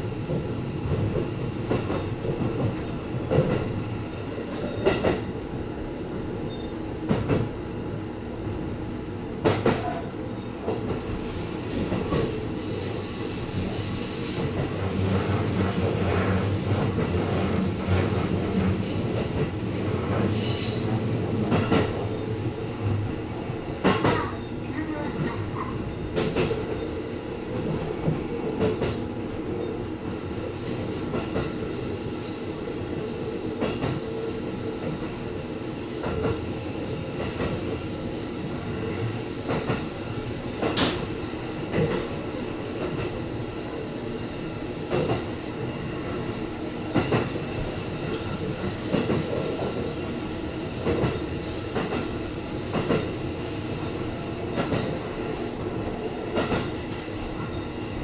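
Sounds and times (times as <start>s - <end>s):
train rumble: 0.0s - 58.0s.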